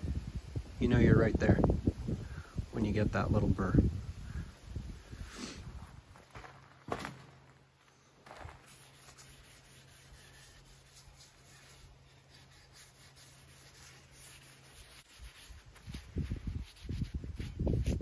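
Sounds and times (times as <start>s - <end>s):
cloth rubbing on wooden handle: 8.4s - 18.0s.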